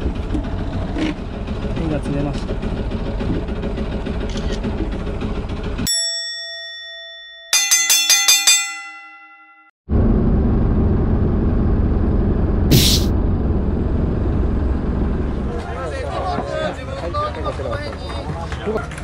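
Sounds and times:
boat engine: 0.0s - 7.8s, 9.9s - 19.0s
ringing bell clangs: 5.9s - 9.8s.

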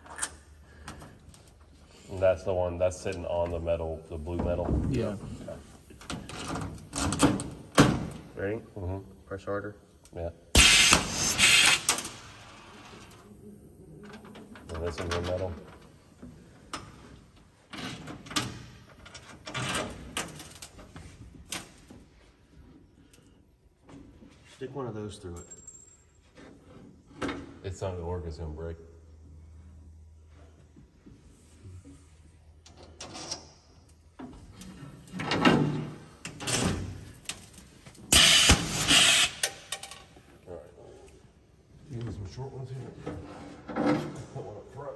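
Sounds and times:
fasteners rattling and scraping: 13.9s - 22.1s.

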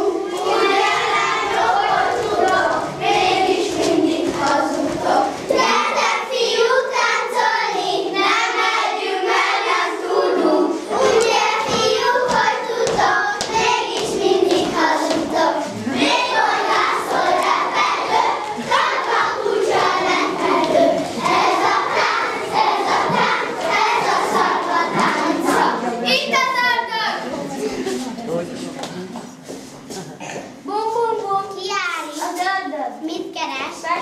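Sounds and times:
children singing: 0.0s - 26.1s.

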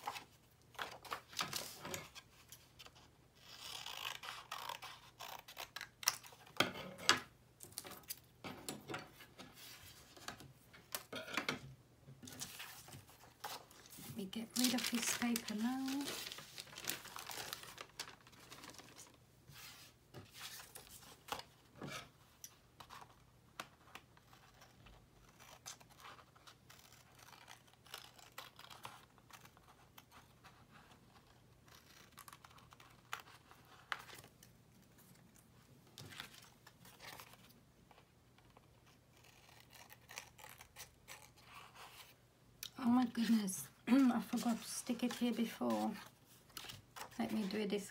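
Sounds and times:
scissors snipping paper: 3.4s - 6.6s, 14.5s - 17.5s, 24.5s - 30.2s, 38.9s - 41.8s
paper rustling: 12.2s - 21.5s, 43.1s - 47.9s.

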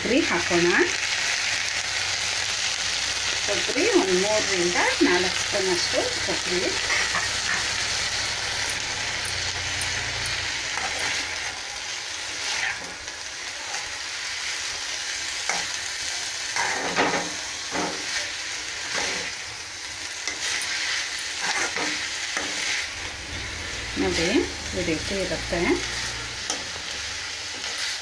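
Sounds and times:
food sizzling: 0.0s - 28.0s
spoon stirring and scraping pan: 5.9s - 11.6s, 12.3s - 14.0s, 15.2s - 23.0s, 24.0s - 28.0s.

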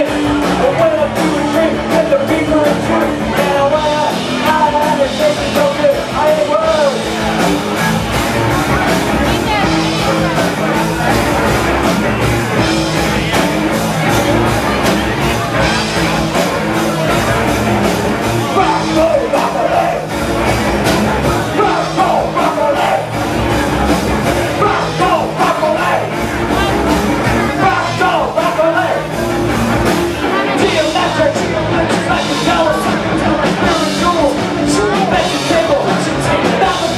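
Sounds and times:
person singing: 0.0s - 11.2s, 18.4s - 20.2s, 20.9s - 29.2s, 30.2s - 36.9s
rock band playing loudly: 0.0s - 36.9s.

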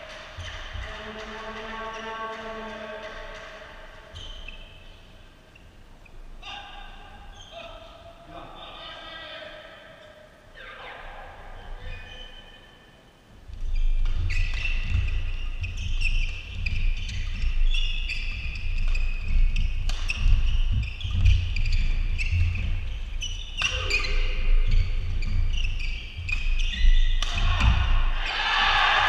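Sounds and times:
shoes squeaking on court floor: 0.0s - 2.2s, 3.0s - 6.3s, 7.2s - 8.1s, 13.6s - 28.4s
rackets hitting shuttlecock: 19.8s - 20.5s, 27.1s - 27.9s.

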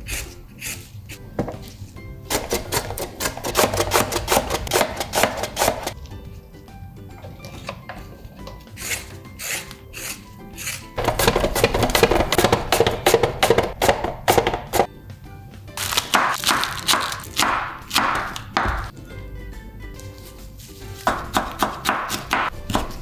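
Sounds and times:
carrot scraping on mandoline: 0.0s - 1.3s, 2.2s - 6.0s, 8.4s - 14.9s
background music: 0.0s - 23.0s
knife knocking on wooden board: 11.0s - 14.9s.

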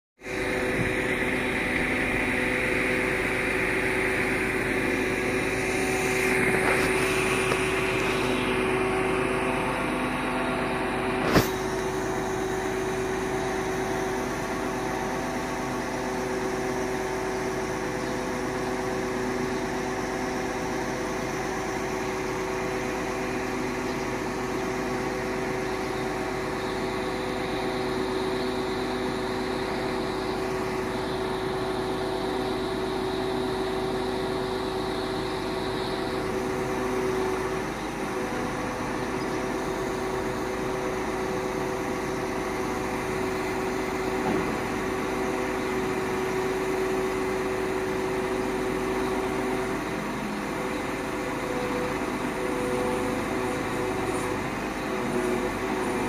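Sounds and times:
hydraulic whine: 0.2s - 56.0s
truck engine running: 0.2s - 56.0s.

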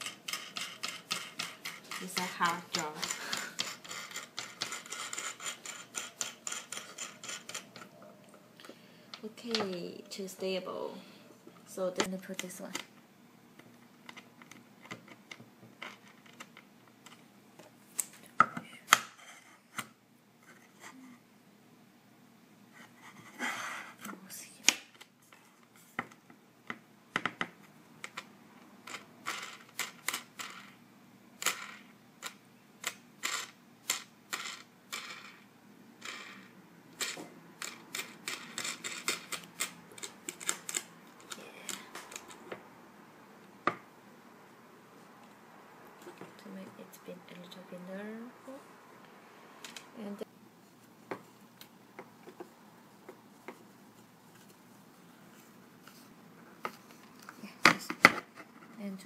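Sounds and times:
nuts and bolts clicking on wood: 0.0s - 8.0s, 36.0s - 42.6s.

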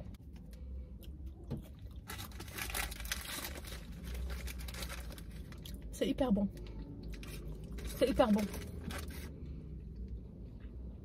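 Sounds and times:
paper packaging crinkling: 2.0s - 5.7s, 7.1s - 9.3s.

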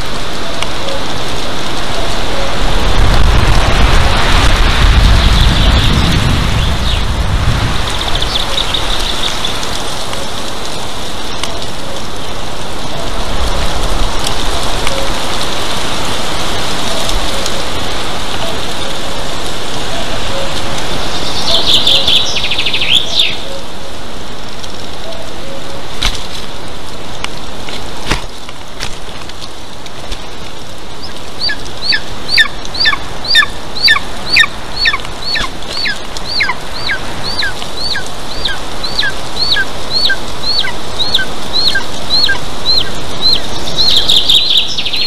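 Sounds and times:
rain hissing: 0.0s - 45.0s
bird calls: 7.8s - 10.4s, 19.9s - 23.7s, 30.2s - 45.0s.

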